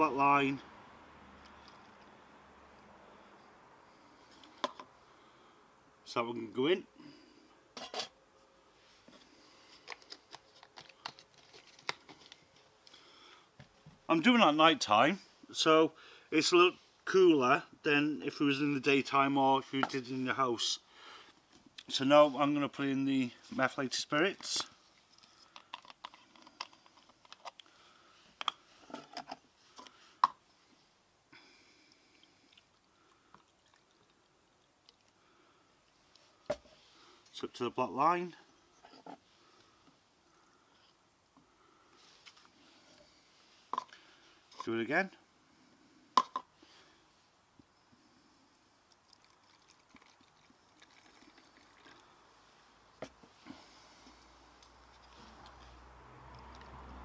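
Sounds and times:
liquid pouring into plastic tub: 48.9s - 52.1s.

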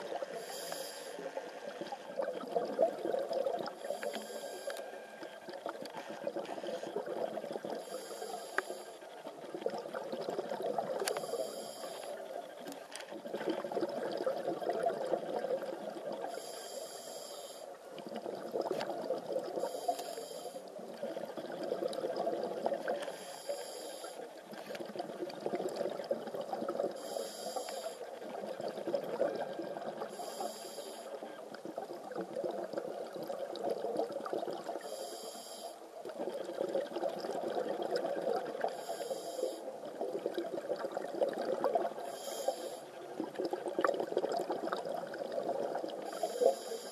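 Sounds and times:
regulator inhale hiss: 0.2s - 2.1s, 3.8s - 5.2s, 7.8s - 9.1s, 11.0s - 12.2s, 16.3s - 17.8s, 19.6s - 20.7s, 23.0s - 24.7s, 27.0s - 28.1s, 30.1s - 31.2s, 34.8s - 35.9s, 38.6s - 39.7s, 42.0s - 43.0s, 46.0s - 46.9s.

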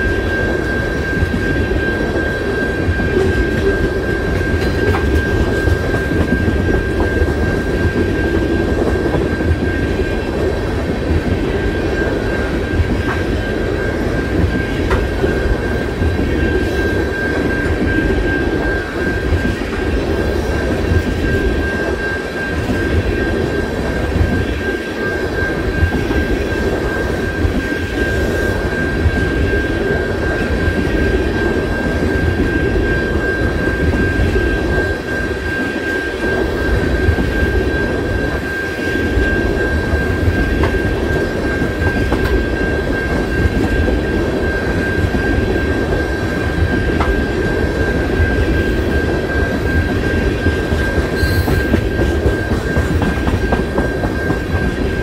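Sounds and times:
train wheels rumbling on rails: 0.0s - 55.0s
high squeal from wheels: 48.6s - 54.9s.

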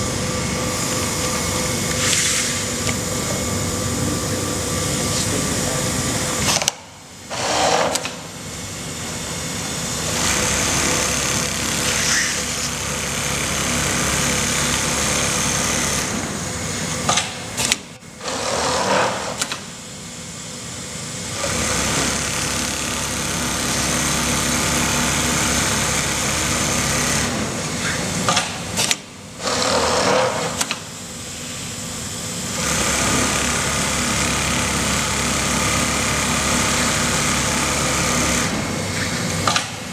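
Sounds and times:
sewing machine running: 8.9s - 16.3s, 18.2s - 19.5s, 21.3s - 27.6s, 29.4s - 30.7s, 32.5s - 38.8s.

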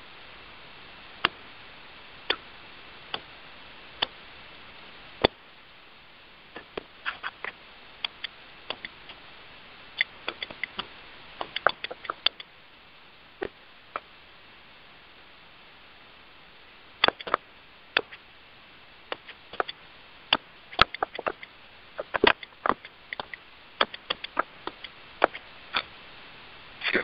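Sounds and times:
sharp clicks and taps: 6.6s - 9.2s, 10.0s - 12.5s, 17.0s - 17.4s, 19.1s - 25.9s.

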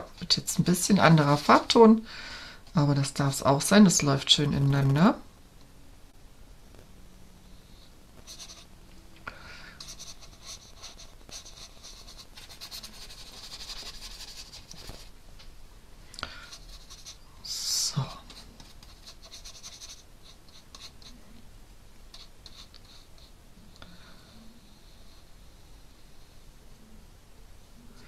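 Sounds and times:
paintbrush rustling on paper: 0.0s - 1.8s, 8.2s - 8.7s, 9.8s - 15.2s, 16.4s - 17.3s, 18.1s - 21.4s, 22.1s - 23.4s.

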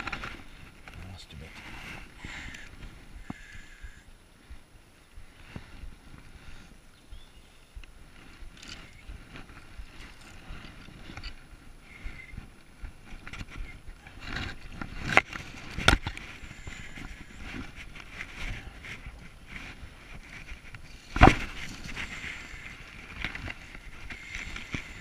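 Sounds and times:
handling rustling near microphone: 8.1s - 25.0s.

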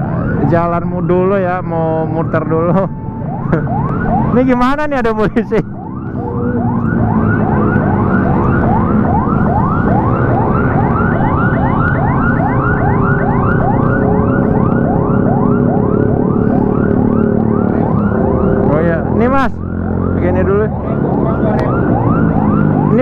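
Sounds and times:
police siren yelping: 0.0s - 23.0s
low drone: 5.7s - 22.9s.

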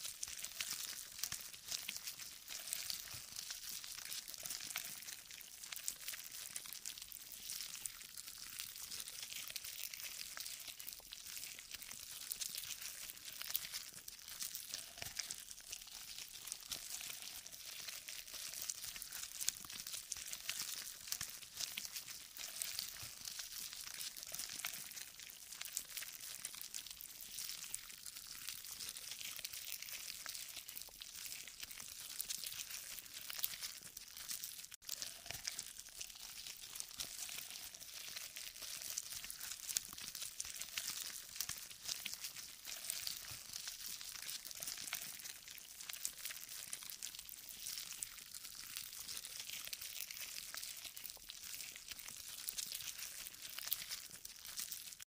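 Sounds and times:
dense crackle of tiny clicks: 0.0s - 55.0s.

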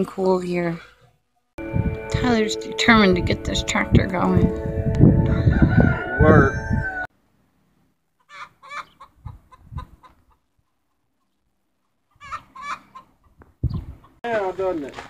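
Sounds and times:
person speaking: 1.6s - 5.2s
background music: 1.6s - 7.1s
chicken clucking: 8.2s - 14.2s.

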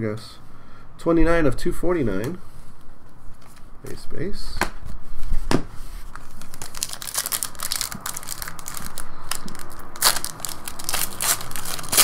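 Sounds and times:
foil wrapper crinkling and tearing: 6.1s - 12.0s.

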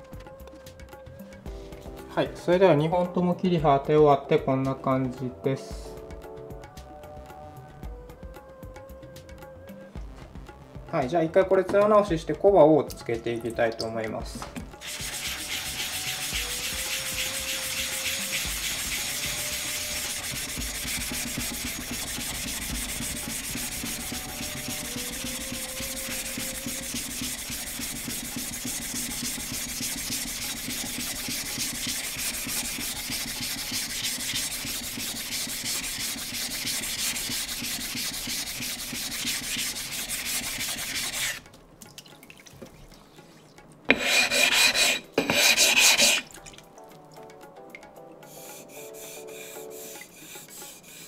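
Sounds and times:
blade rasping on whetstone: 14.8s - 41.4s, 43.9s - 46.3s, 48.3s - 51.0s.

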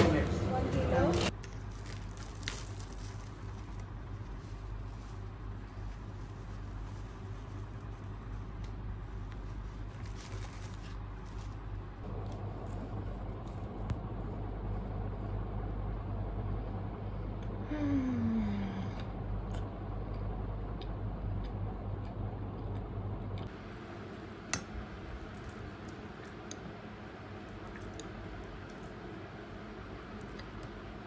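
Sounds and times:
low room hum: 0.0s - 31.0s
soft eating sounds: 17.2s - 31.0s.

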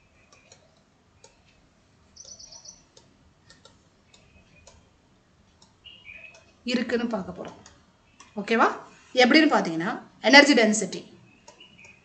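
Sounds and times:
stylus tapping tablet screen: 0.0s - 8.4s, 11.4s - 12.0s.

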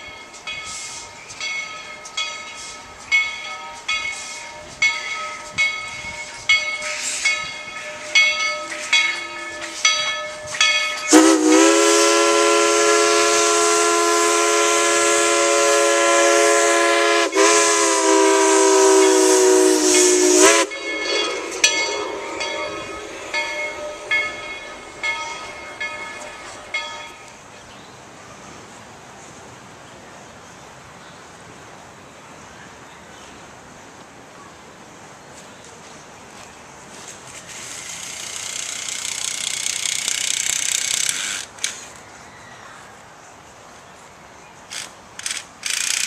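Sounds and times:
locomotive bell ringing: 0.0s - 11.7s, 19.0s - 27.4s
steam whistle blast: 11.1s - 22.4s.

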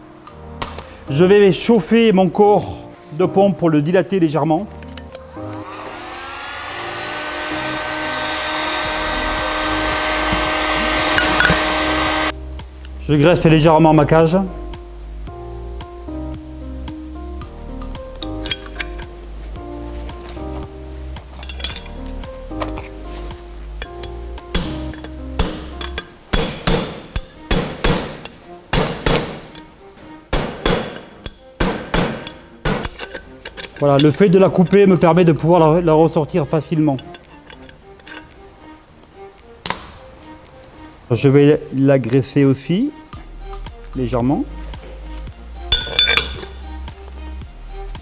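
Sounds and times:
heat gun blowing with a whine: 5.4s - 12.4s
hammer striking steel punch: 24.5s - 29.6s, 30.3s - 33.1s.

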